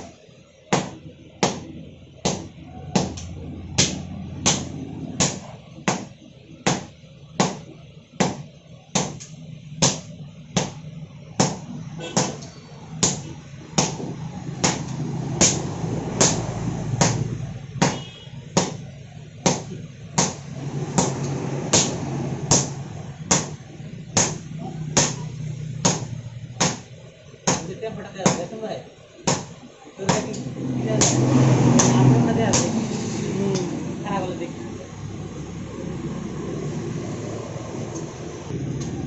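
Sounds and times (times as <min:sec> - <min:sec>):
low steady hum: 0:00.0 - 0:39.0.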